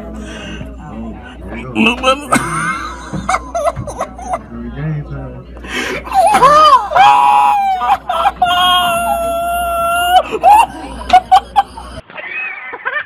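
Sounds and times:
child screaming: 6.2s - 10.2s.

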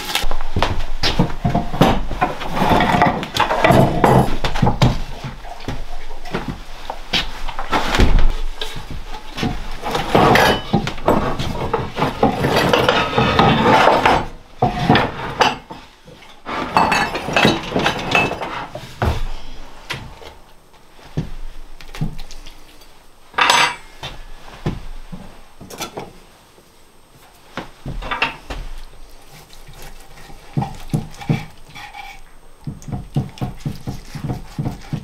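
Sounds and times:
hard objects clattering and knocking: 0.3s - 6.6s, 7.5s - 19.3s.

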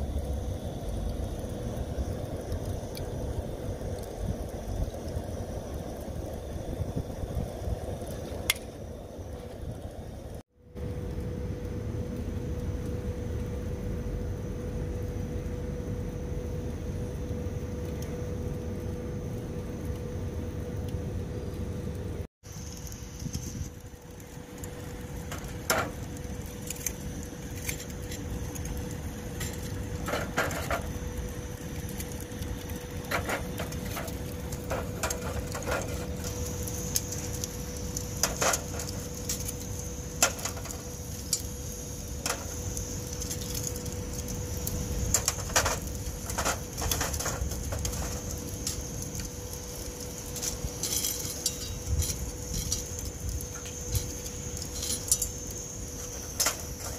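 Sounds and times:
steady low rumble: 0.0s - 56.9s
sharp clicks and cracks: 8.0s - 8.8s, 21.9s - 56.9s.

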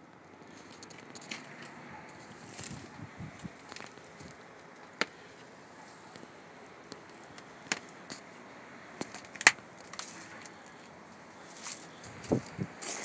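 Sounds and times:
footsteps crunching on snow: 11.4s - 13.0s.

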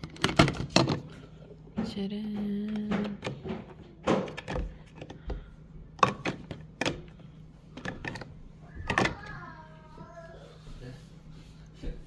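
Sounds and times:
plastic clicks and knocks: 1.8s - 5.4s.

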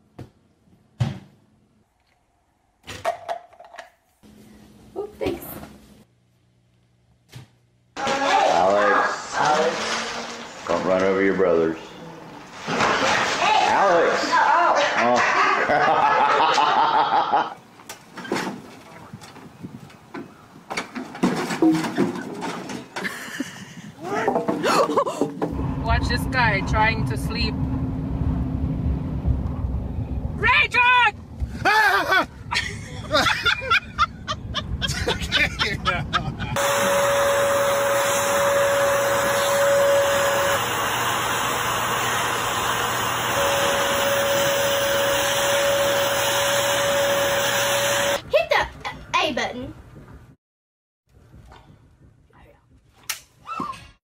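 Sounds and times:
wooden ramp boards knocking and creaking: 20.1s - 23.0s
vacuum cleaner running: 36.6s - 48.2s.

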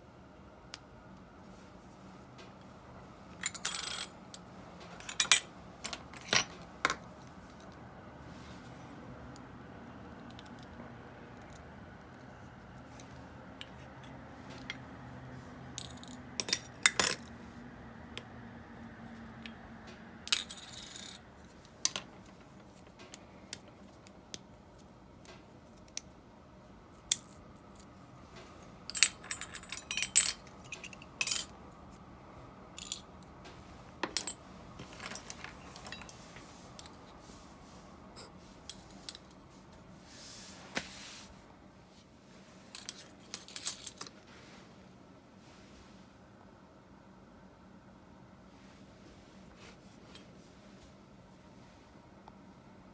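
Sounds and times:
small metal parts clinking: 3.4s - 4.1s, 15.8s - 17.3s, 20.3s - 21.2s, 28.9s - 31.6s, 32.8s - 33.1s, 42.7s - 44.2s.

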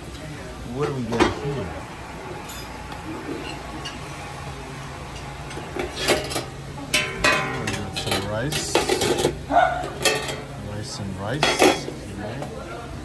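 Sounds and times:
steady low hum: 0.0s - 13.0s
metal lids clinking: 5.8s - 10.5s
metal ringing: 6.9s - 8.2s.

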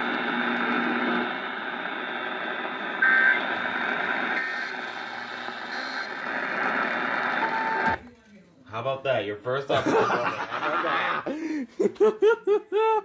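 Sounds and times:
radio static and hiss: 0.0s - 8.0s.

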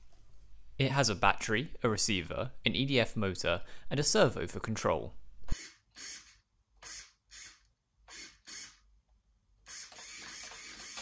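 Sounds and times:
servo whirring: 9.7s - 11.0s.

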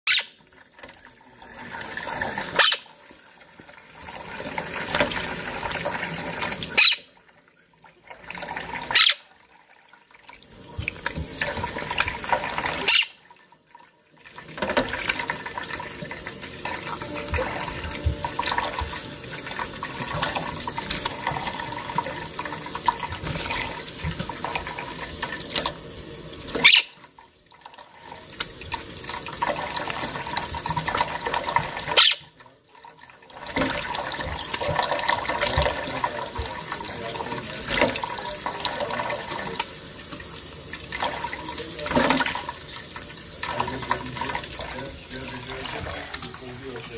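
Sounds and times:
tap water running into sink: 0.1s - 46.9s
parrot splashing and flapping: 8.2s - 9.3s, 10.8s - 13.2s.

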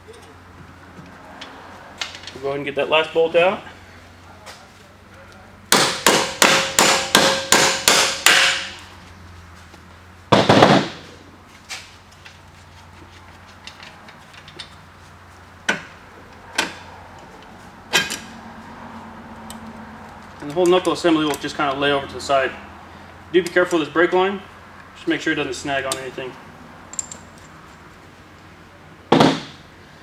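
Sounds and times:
hammer striking metal: 5.7s - 8.8s.

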